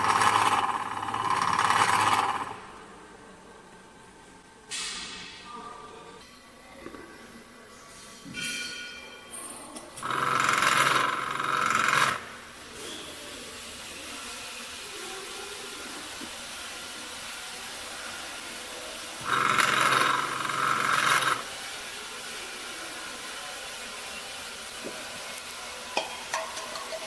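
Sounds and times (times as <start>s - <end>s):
filling machine motor running: 0.0s - 2.7s, 10.0s - 12.4s, 13.6s - 25.7s.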